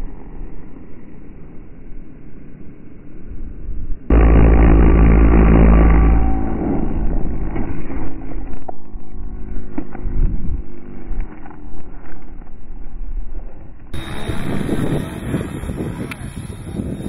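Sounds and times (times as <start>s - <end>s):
faint falling hum: 0.0s - 17.0s
wind buffeting microphone: 7.0s - 17.0s.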